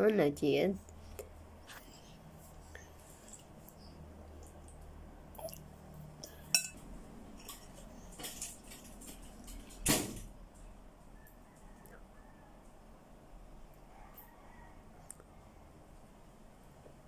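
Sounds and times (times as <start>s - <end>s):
metal spoon clinking on plate: 6.5s - 6.8s.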